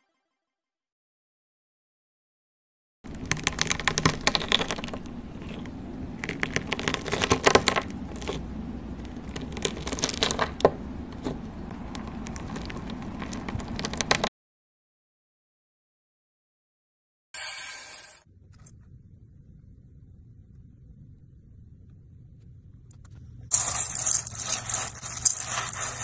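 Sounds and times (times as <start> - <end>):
slime crackling and crunching: 3.1 - 10.6, 11.7 - 14.3, 23.5 - 26.0.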